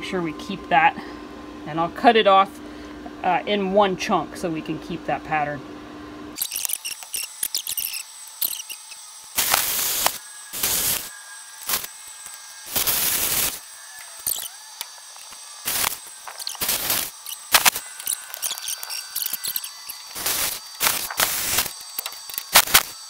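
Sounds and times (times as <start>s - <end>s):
plasma cutter hissing: 6.4s - 23.0s
small clicks and crackles: 10.9s - 23.0s.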